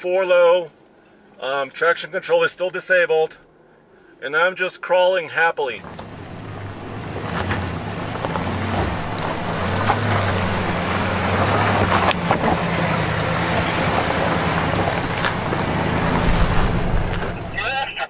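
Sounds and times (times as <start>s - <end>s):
engine humming: 5.8s - 18.0s
tyres crackling over gravel: 5.8s - 18.0s.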